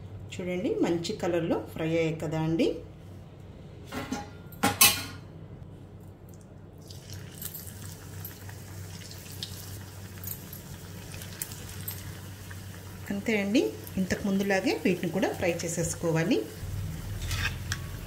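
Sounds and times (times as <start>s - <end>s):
bread sizzling in hot oil: 6.8s - 18.0s.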